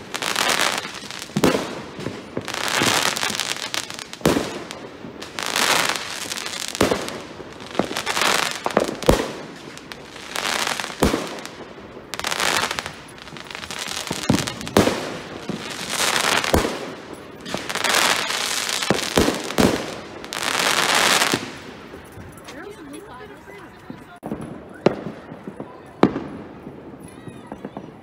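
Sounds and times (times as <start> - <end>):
firework shells bursting: 0.0 - 22.0
firework crackling: 0.0 - 22.4.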